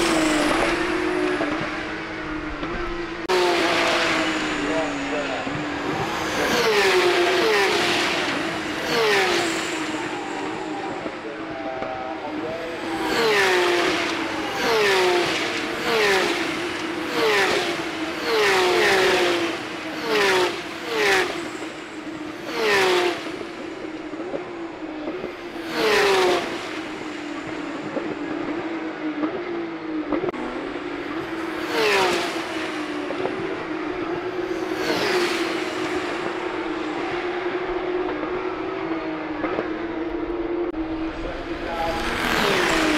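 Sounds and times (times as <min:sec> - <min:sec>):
race cars passing at speed: 0:00.0 - 0:42.9
steady engine drone: 0:00.0 - 0:42.9.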